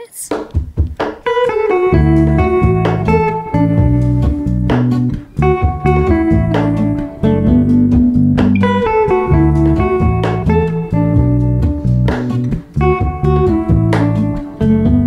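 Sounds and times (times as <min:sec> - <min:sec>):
plucked guitar music: 0:00.0 - 0:15.0.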